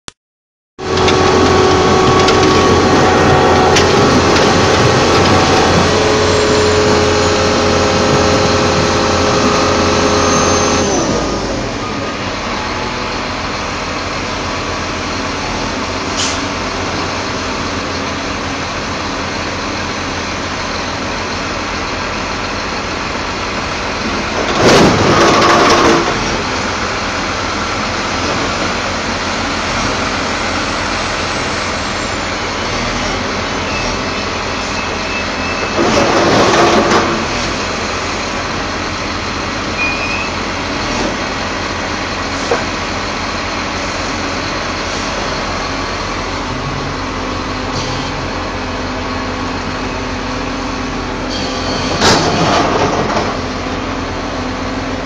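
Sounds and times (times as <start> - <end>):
heavy diesel engine running: 0.8 - 55.0.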